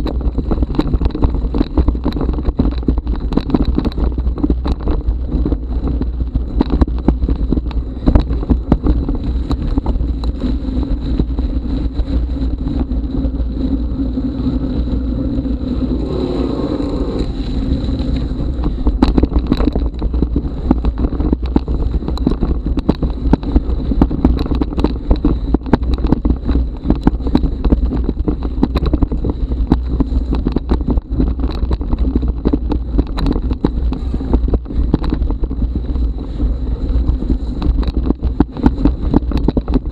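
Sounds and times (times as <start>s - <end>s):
bike rattling and knocking: 0.0s - 39.9s
wind buffeting microphone: 0.0s - 39.9s
wavering whine: 12.0s - 20.1s.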